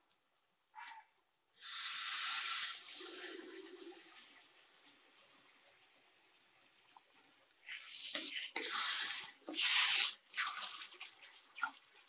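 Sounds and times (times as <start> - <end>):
water splashing and sloshing in pot: 2.5 - 12.0.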